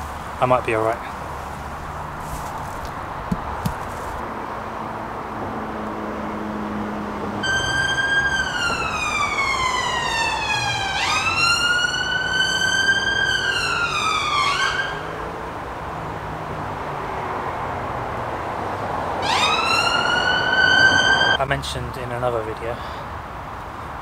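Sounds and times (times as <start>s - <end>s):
emergency siren wailing: 7.0s - 15.6s, 18.5s - 21.4s.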